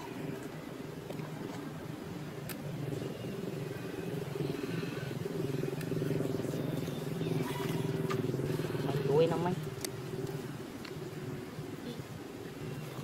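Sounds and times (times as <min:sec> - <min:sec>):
small engine idling: 0:02.9 - 0:11.4.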